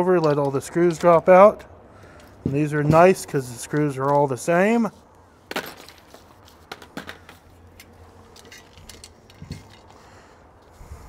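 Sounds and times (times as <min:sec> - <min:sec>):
small metal parts clinking: 0:05.5 - 0:10.0.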